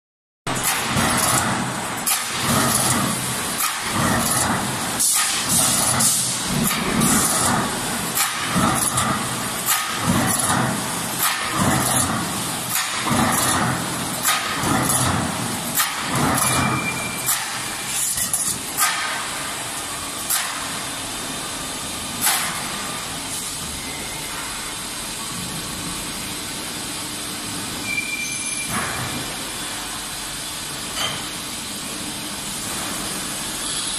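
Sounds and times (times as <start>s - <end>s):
short high beep: 16.5s - 17.3s, 27.8s - 28.7s.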